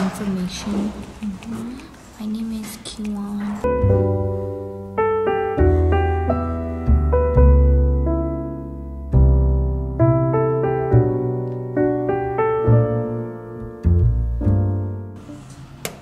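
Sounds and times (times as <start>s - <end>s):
slow piano music: 3.5s - 15.8s.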